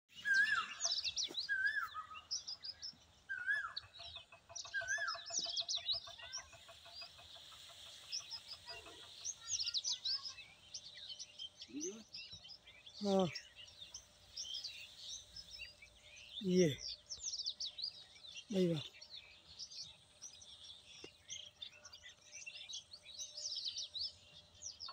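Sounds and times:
whistled bird phrase: 0.1s - 2.2s
birds chirping and twittering: 0.1s - 24.9s.

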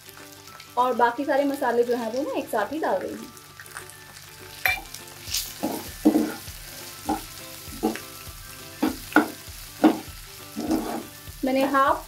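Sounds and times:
onions sizzling in oil: 0.0s - 12.0s
spoon scraping a pan: 4.6s - 8.1s, 8.8s - 11.2s.

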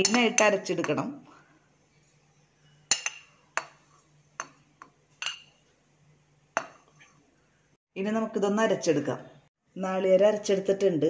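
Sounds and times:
metal spoon clinking on glass bowl: 0.0s - 1.0s, 2.9s - 3.8s, 5.2s - 5.6s.

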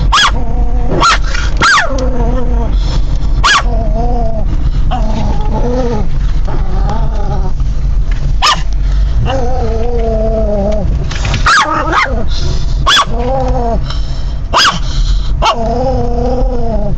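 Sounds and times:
car rumble: 0.0s - 16.9s
small dog yipping: 0.1s - 2.0s, 3.4s - 3.7s, 8.4s - 8.7s, 11.4s - 12.2s, 12.8s - 13.3s, 14.5s - 14.8s, 15.4s - 15.6s
dog whining: 3.4s - 7.6s, 9.2s - 13.8s, 15.4s - 16.9s.

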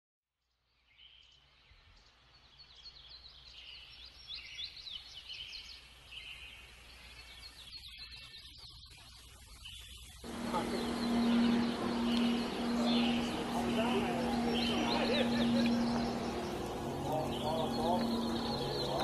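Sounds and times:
birds chirping: 0.8s - 19.0s
low steady hum: 10.2s - 19.0s.

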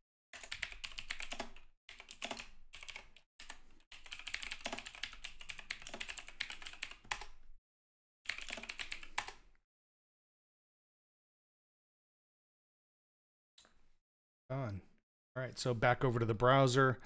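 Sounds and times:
fast typing on keyboard: 0.4s - 7.4s, 8.3s - 9.4s.

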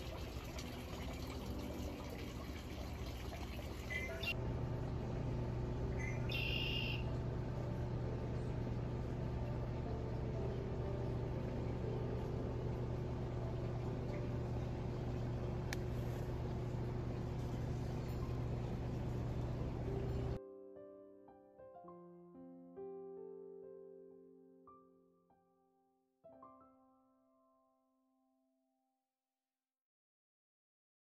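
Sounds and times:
steady low hum: 0.0s - 20.4s
bird chirp: 3.9s - 4.4s, 5.9s - 7.1s.

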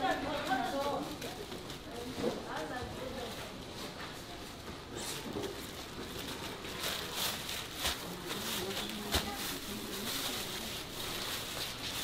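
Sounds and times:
plastic crinkling and rustling: 0.0s - 12.0s.

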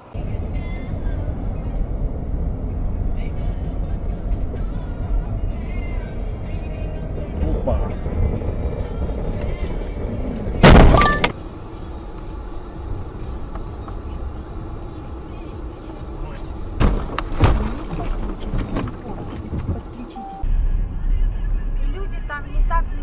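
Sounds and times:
car noise: 0.0s - 23.0s
loud car crash: 10.5s - 11.4s, 16.8s - 19.0s.

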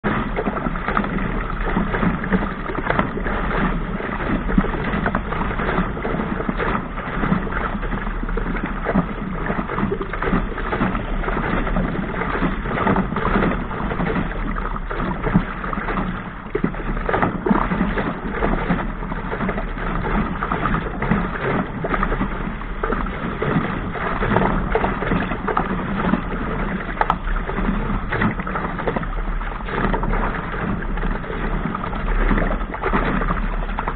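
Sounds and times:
rushing water: 0.0s - 33.9s
waves splashing against hull: 0.0s - 33.9s
wind: 0.0s - 33.9s.

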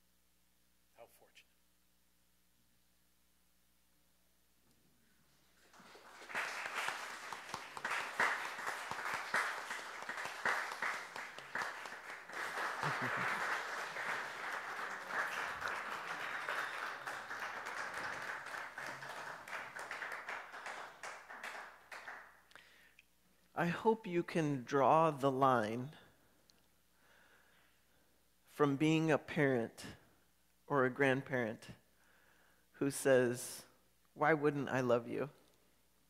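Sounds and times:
congregation applauding: 5.4s - 22.8s.

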